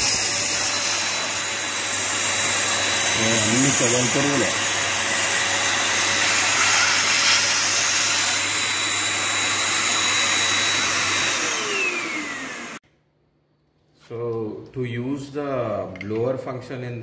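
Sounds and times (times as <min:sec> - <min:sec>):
handheld vacuum cleaner running: 0:00.0 - 0:12.8.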